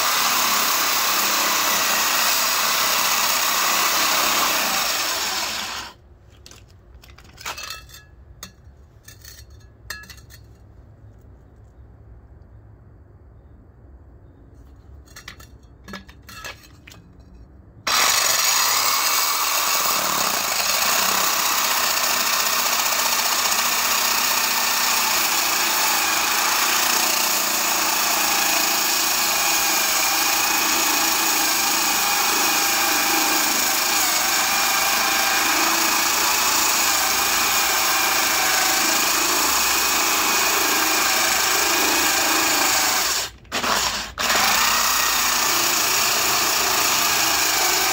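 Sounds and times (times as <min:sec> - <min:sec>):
electric drill grinding into concrete: 0:00.0 - 0:06.0, 0:17.9 - 0:47.9.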